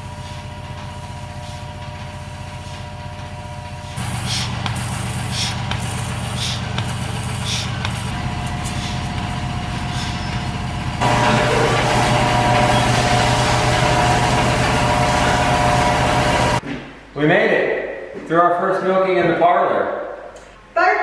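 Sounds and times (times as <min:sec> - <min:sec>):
low hum of vacuum system: 0:00.0 - 0:16.6
milker pulsating hiss: 0:03.8 - 0:16.6.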